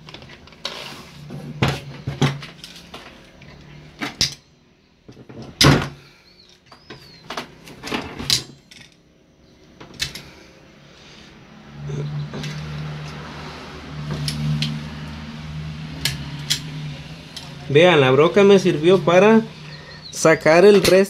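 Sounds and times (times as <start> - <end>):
metal hand tools clicking and clanking: 16.0 - 17.6.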